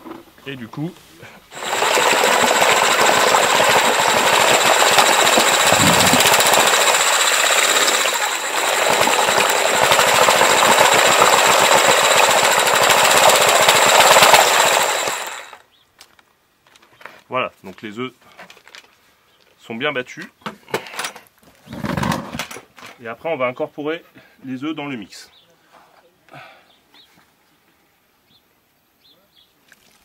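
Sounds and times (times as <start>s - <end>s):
eggs churning: 1.5s - 15.6s
electric drill motor whine: 1.5s - 15.6s.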